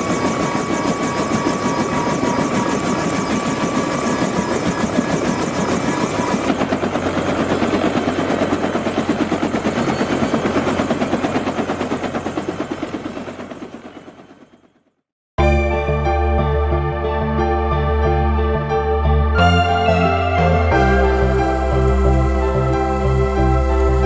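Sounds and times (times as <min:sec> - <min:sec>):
helicopter rotor blades: 0:00.0 - 0:15.0
high whine: 0:15.4 - 0:24.0
deep steady hum: 0:16.1 - 0:24.0.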